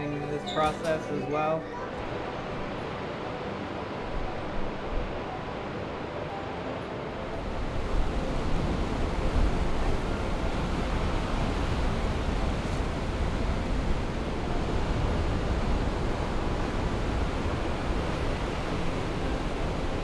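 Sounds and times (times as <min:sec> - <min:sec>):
ocean surf breaking: 0:00.0 - 0:20.0
wind rumbling on microphone: 0:07.4 - 0:20.0.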